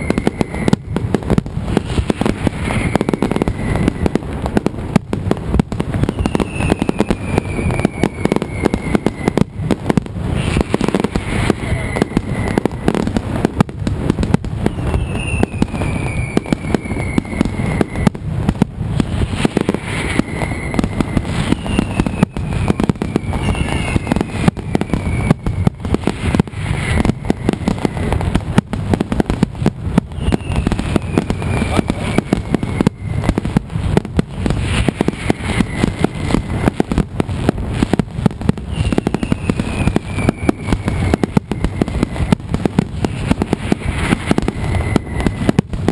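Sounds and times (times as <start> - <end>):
high falling whistles: 0.0 - 0.9, 1.7 - 4.2, 6.0 - 9.6, 10.4 - 13.0, 14.6 - 18.2, 19.2 - 28.3, 30.0 - 33.5, 34.6 - 37.0, 38.6 - 42.4, 43.0 - 45.6
firecrackers banging rapidly: 0.0 - 45.9.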